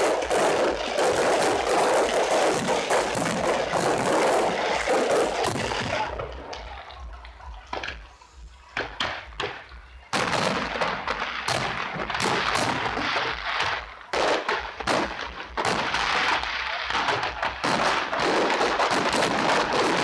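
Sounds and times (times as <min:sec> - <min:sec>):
fireworks exploding and crackling: 0:00.0 - 0:20.0.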